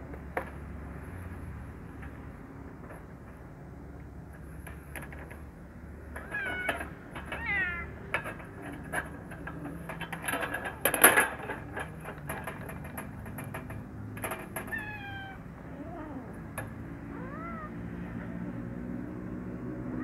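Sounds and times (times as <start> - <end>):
kitten meowing: 6.3 - 6.8, 14.7 - 16.4, 17.1 - 17.9.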